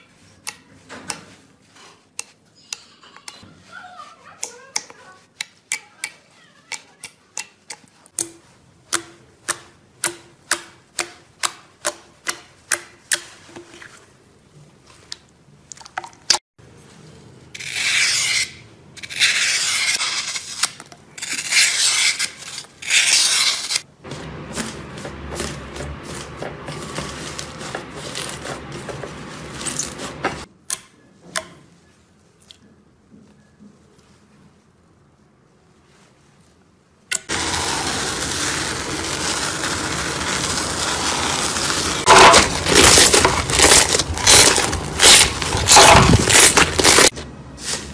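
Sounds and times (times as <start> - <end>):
knife scraping floral foam: 17.6 - 30.5, 37.3 - 47.9.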